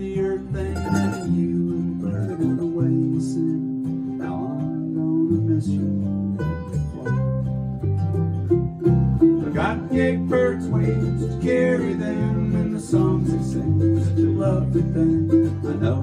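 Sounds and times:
acoustic guitar: 0.0 - 16.0
mandolin: 0.0 - 16.0
electric bass line: 4.7 - 16.0.

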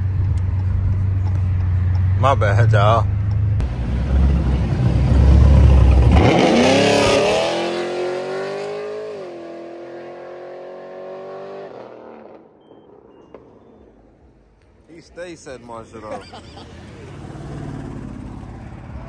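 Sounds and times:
car exhaust rumbling and revving: 0.0 - 12.5, 17.1 - 19.0.

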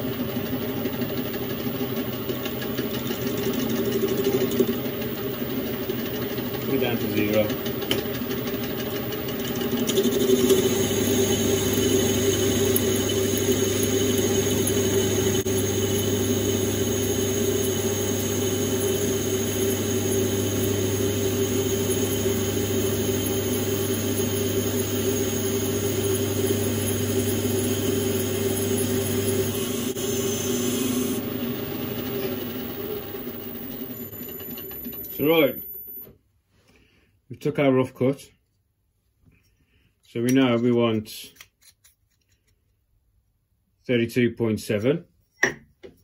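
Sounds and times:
metal lathe whine: 0.1 - 36.1
lathe tool cutting metal: 2.3 - 35.6.

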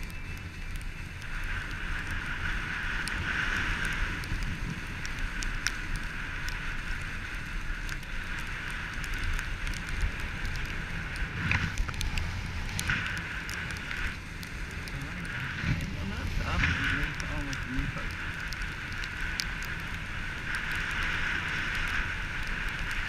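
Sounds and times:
wind rumble on microphone: 0.0 - 23.0
skis scraping on packed snow: 1.8 - 23.0
scattered clicks: 7.7 - 23.0.

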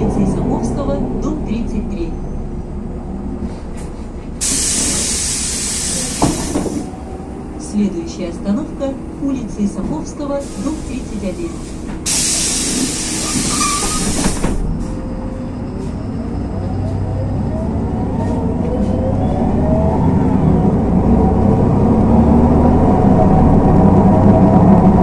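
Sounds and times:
bus engine and drivetrain whine: 0.0 - 25.0
compressed air hiss: 4.4 - 6.8, 10.4 - 14.4.

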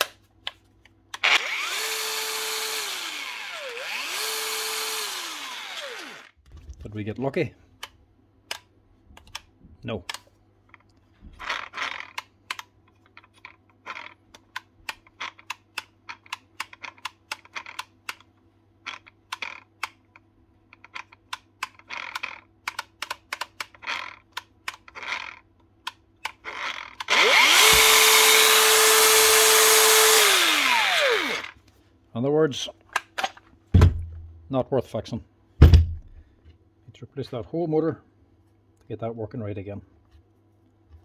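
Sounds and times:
angle grinder motor whining: 1.2 - 6.4, 26.5 - 31.6.

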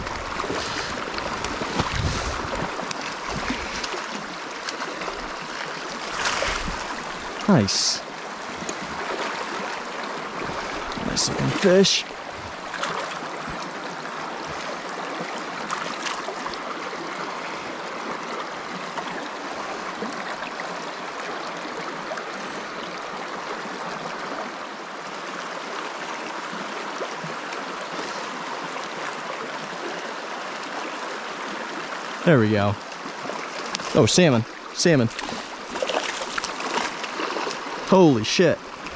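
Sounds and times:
river rushing over stones: 0.0 - 38.9.

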